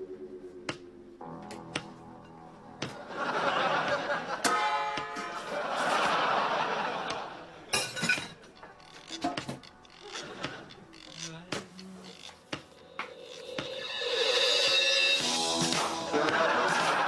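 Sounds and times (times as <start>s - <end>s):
audience laughter: 3.0s - 4.5s, 5.3s - 7.7s, 15.9s - 17.0s.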